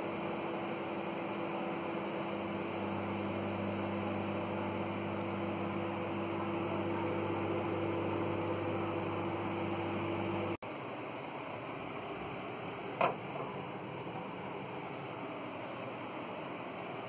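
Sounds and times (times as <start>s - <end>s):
microwave oven humming: 0.0s - 17.0s.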